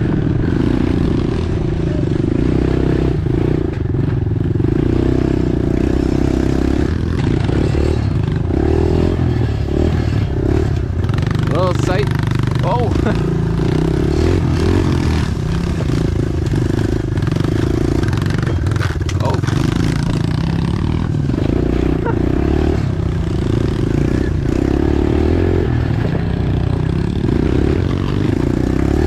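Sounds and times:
pit bike engine revving: 0.0 - 29.0
bike rattles and knocks: 5.3 - 22.1.

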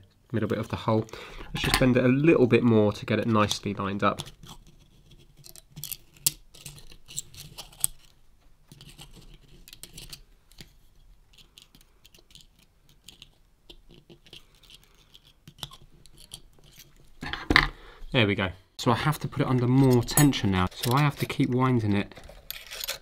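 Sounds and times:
pliers clicking and scraping metal: 4.1 - 8.1, 8.7 - 10.7, 11.3 - 17.0, 19.5 - 23.0.

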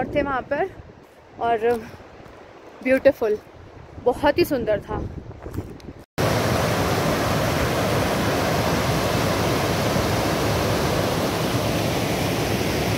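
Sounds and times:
stream rushing over boulders: 6.2 - 12.9.

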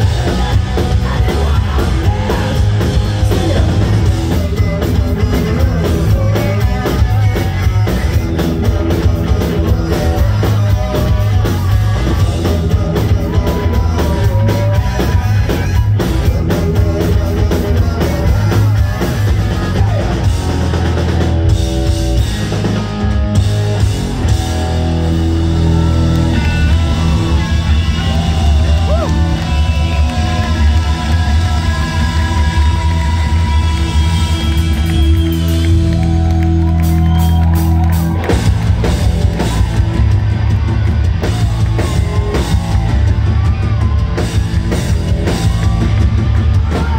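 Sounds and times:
person singing: 0.0 - 21.3
drum kit: 0.0 - 46.9
live rock band playing: 0.0 - 46.9.

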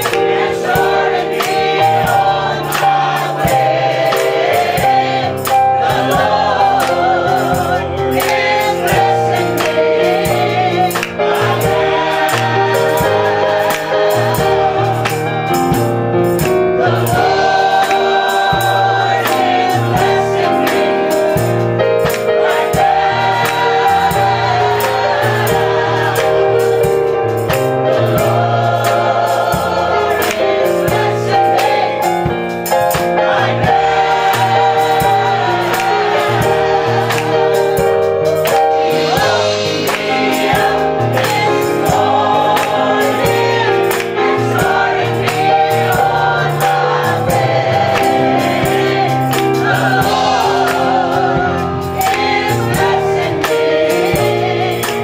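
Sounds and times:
gospel choir singing: 0.0 - 55.0
steady beat: 32.0 - 54.7.

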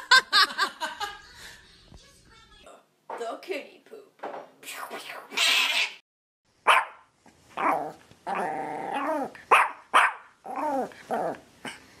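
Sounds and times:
dog barking: 6.6 - 7.8, 9.5 - 10.4.

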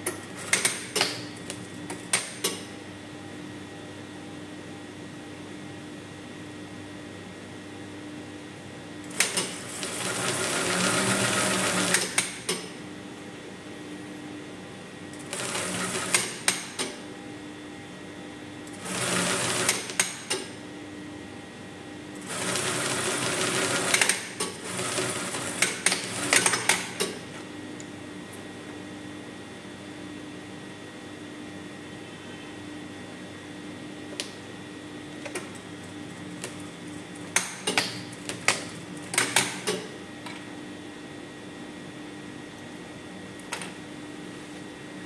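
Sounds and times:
sewing machine stitching: 9.1 - 12.2, 18.8 - 20.1, 22.2 - 27.0.

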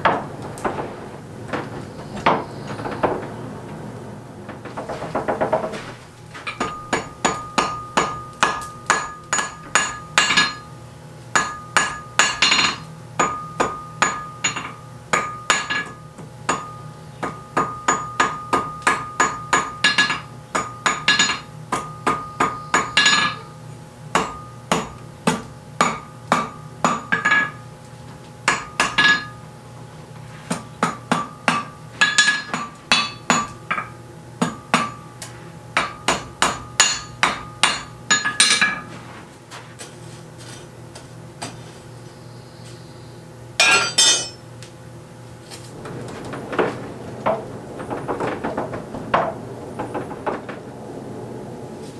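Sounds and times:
hammer striking iron on anvil: 6.5 - 10.7, 11.4 - 23.4, 24.2 - 27.6, 35.8 - 38.8, 43.6 - 44.4
anvil ringing: 43.6 - 44.4.

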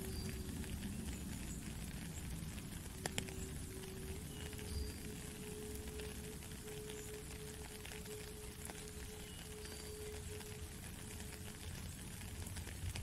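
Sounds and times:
rain falling on a puddle: 0.0 - 13.0
flute holding long low notes: 3.0 - 10.7.

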